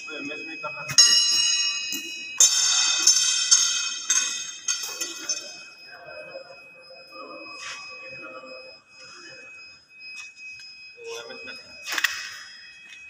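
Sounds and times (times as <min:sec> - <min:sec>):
steel struck ringing: 0:01.0 - 0:05.7.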